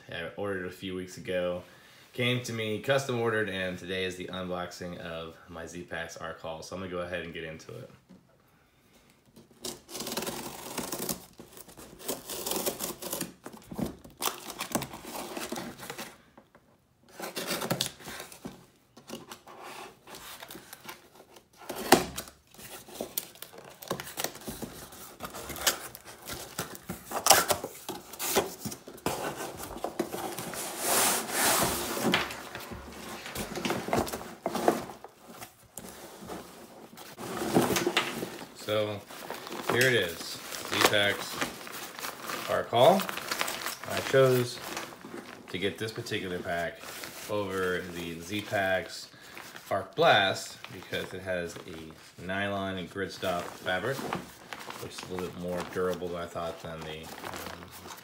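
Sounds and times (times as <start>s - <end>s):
packing tape peeling and tearing: 9.5s - 15.7s, 21.6s - 31.7s
cardboard flaps scraping and rustling: 17.1s - 52.2s, 52.8s - 58.0s
knife slitting cardboard: 21.6s - 38.4s.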